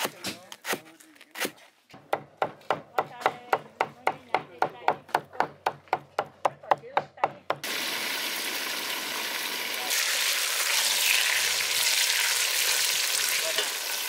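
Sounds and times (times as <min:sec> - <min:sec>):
knife chopping on cutting board: 0:01.4 - 0:07.6.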